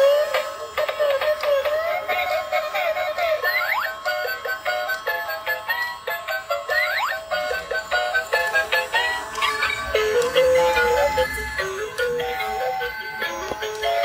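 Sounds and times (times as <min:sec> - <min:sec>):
tinny electronic toy tune: 0:00.0 - 0:14.0.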